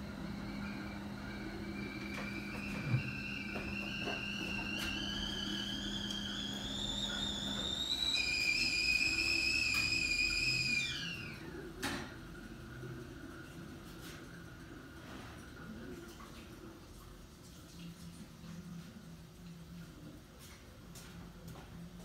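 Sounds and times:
kettle whistling: 0:00.0 - 0:12.1.

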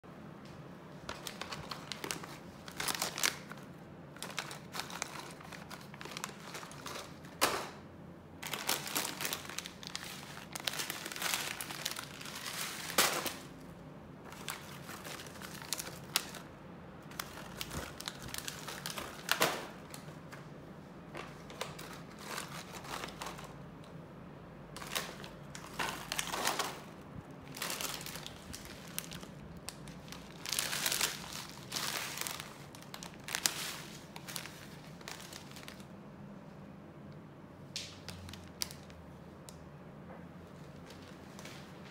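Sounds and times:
steady low hum: 0:00.0 - 0:37.8
plastic snack packets crinkling: 0:01.0 - 0:07.8, 0:08.4 - 0:20.4, 0:21.1 - 0:24.0, 0:24.7 - 0:36.0, 0:37.8 - 0:39.0.

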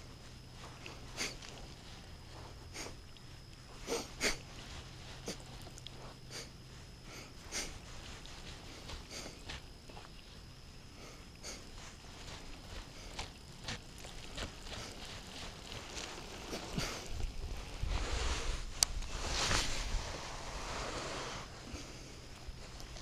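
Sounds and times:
man sniffling: 0:00.9 - 0:01.6, 0:02.7 - 0:03.0, 0:03.7 - 0:04.5, 0:05.1 - 0:08.0, 0:08.7 - 0:09.6, 0:10.9 - 0:13.3, 0:16.4 - 0:17.2.

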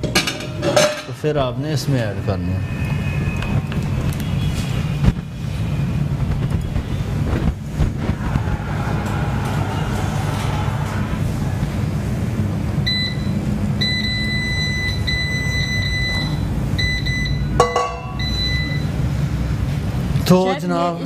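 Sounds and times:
low hum: 0:06.2 - 0:14.0
oven control panel beeping: 0:12.9 - 0:18.9.

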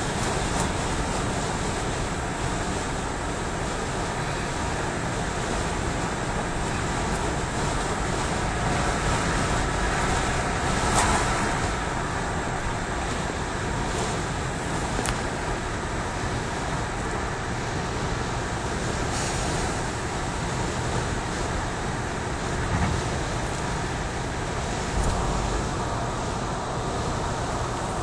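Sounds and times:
car engine noise inside cabin: 0:00.0 - 0:28.0
road noise: 0:00.0 - 0:28.0.

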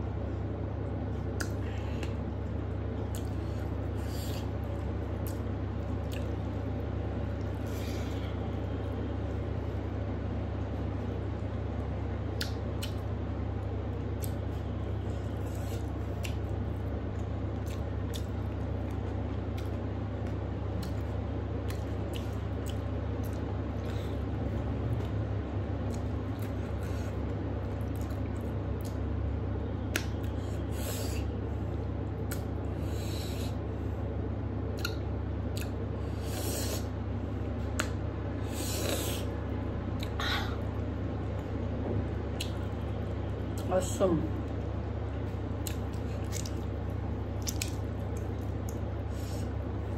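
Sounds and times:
steady low hum: 0:00.0 - 0:49.9
person chewing: 0:01.2 - 0:06.4, 0:12.4 - 0:13.1, 0:14.1 - 0:25.2, 0:25.8 - 0:29.0, 0:34.7 - 0:36.9, 0:37.6 - 0:39.3, 0:45.3 - 0:49.7
wet mouth clicks and smacks: 0:01.3 - 0:02.2, 0:12.3 - 0:13.0, 0:29.8 - 0:30.4, 0:32.2 - 0:32.5, 0:34.8 - 0:35.8, 0:37.7 - 0:38.0, 0:42.3 - 0:42.7, 0:45.6 - 0:46.7, 0:47.4 - 0:48.9.

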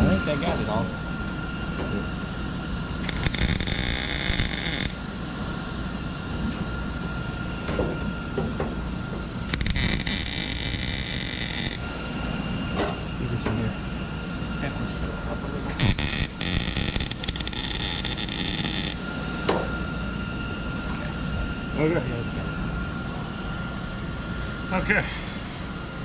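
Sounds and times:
welder arc crackling: 0:03.0 - 0:05.1, 0:09.4 - 0:11.9, 0:15.7 - 0:19.1.

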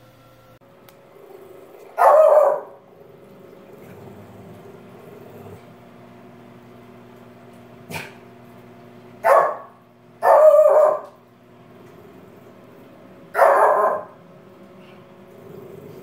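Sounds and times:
small dog barking: 0:01.9 - 0:02.8, 0:09.2 - 0:11.2, 0:13.3 - 0:14.2
dog yelp: 0:02.0 - 0:02.8, 0:09.2 - 0:11.2, 0:13.4 - 0:14.1.

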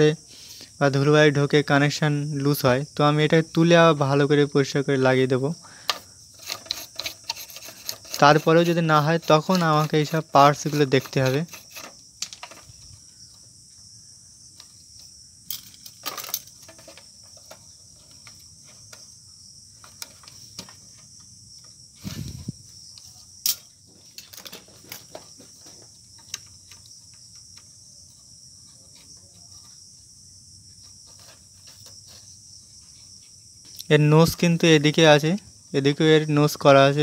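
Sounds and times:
high insect-like chirring: 0:00.0 - 0:37.0
fingers clicking and scraping chip: 0:05.9 - 0:12.6.

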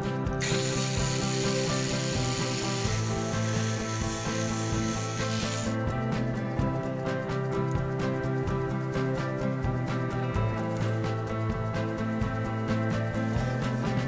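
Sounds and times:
angle grinder cutting steel: 0:00.4 - 0:05.8.

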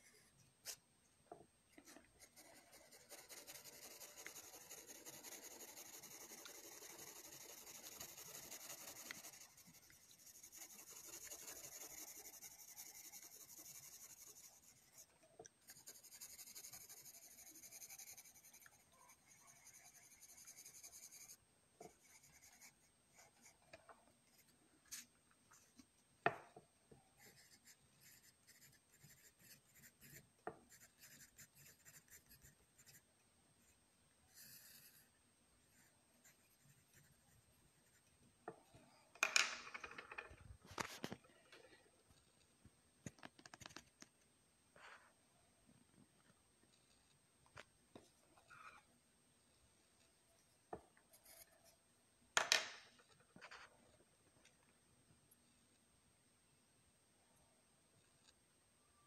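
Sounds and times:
pencil scratching on paper: 0:01.8 - 0:23.6, 0:27.2 - 0:33.0, 0:34.3 - 0:35.1, 0:35.7 - 0:38.0, 0:51.1 - 0:51.7
pencil taps: 0:26.2 - 0:26.6, 0:52.4 - 0:52.8.

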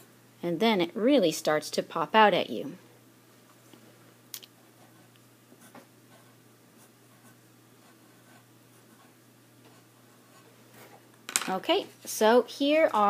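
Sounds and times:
pencil scratching on paper: 0:04.7 - 0:10.5.

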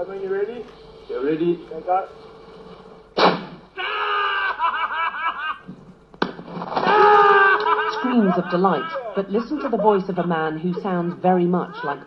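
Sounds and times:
excited screams of delight: 0:03.8 - 0:05.6, 0:06.8 - 0:09.2
people laughing: 0:03.8 - 0:05.8, 0:06.8 - 0:12.0.

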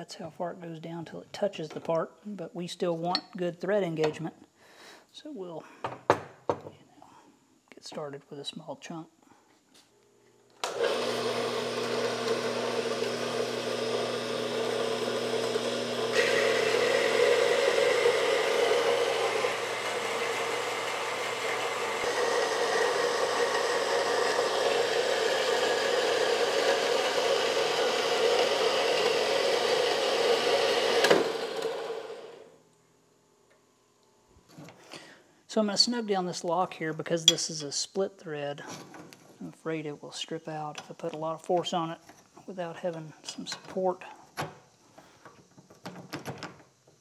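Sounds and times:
band saw cutting metal bar: 0:10.7 - 0:32.4.

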